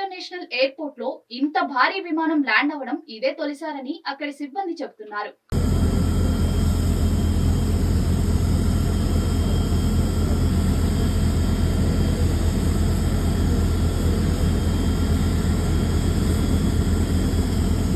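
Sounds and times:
low airport rumble: 5.5 - 17.9
faint high whining tones: 5.6 - 17.9.

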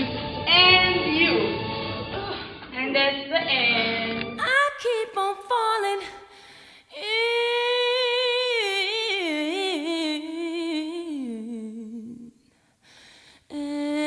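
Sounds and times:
person singing wordless melody: 2.8 - 12.4, 13.4 - 14.0.

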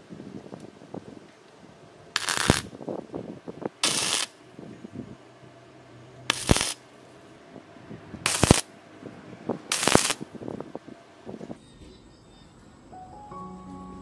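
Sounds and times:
crackling welding arc: 2.2 - 2.8, 3.8 - 4.4, 6.3 - 6.9, 8.2 - 8.7, 9.7 - 10.3.

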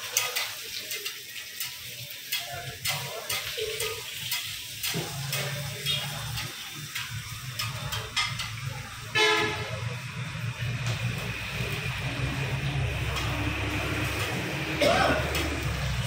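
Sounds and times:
dishes and utensils clinking: 0.0 - 8.9
food frying hiss: 0.0 - 16.0.

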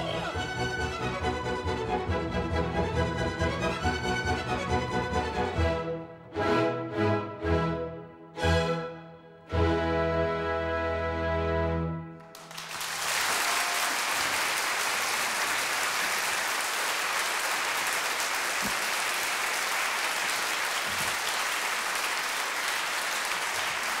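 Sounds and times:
audience applauding: 12.2 - 24.0.

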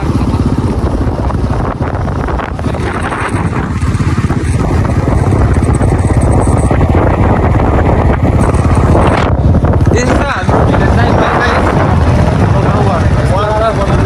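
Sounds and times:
motorcycle engine running: 0.0 - 14.0
wind buffeting microphone: 0.0 - 14.0.

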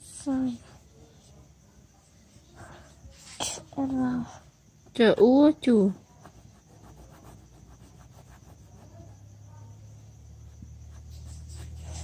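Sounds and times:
marker writing on whiteboard: 10.7 - 12.0.

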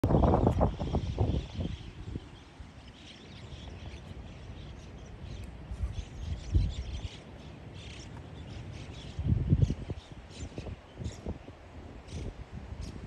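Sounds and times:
wind buffeting microphone: 0.0 - 13.0
faint small birds chirping: 0.1 - 13.0.

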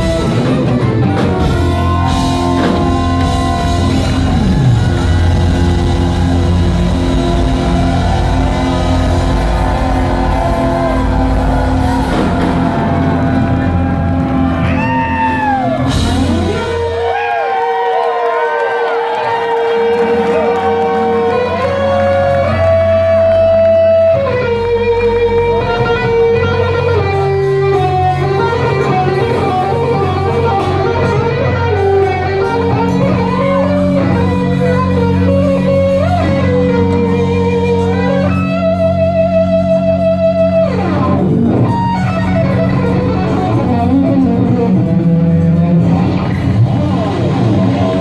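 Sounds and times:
bass guitar: 0.0 - 18.4, 19.1 - 48.0
drums: 0.0 - 48.0
electric guitar lead: 0.0 - 48.0.

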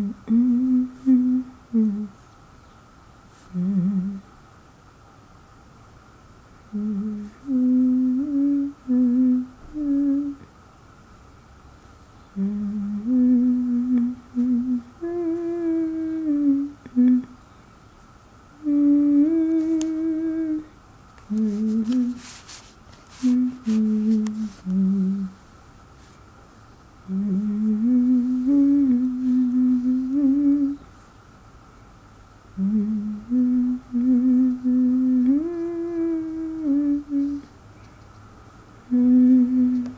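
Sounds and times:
woman humming: 0.0 - 2.2, 3.5 - 4.3, 6.7 - 10.5, 12.4 - 17.4, 18.6 - 22.4, 23.2 - 25.4, 27.1 - 30.9, 32.6 - 37.5, 38.9 - 39.9.

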